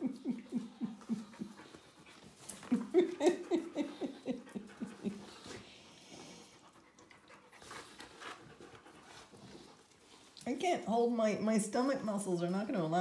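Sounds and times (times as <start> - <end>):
dog panting: 0.0 - 10.4.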